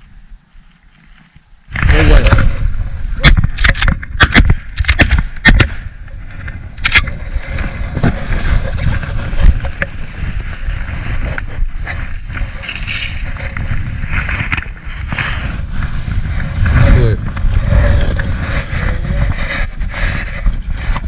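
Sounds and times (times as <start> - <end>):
wind rumbling on microphone: 0.0 - 21.0
canvas rustling: 7.2 - 16.8.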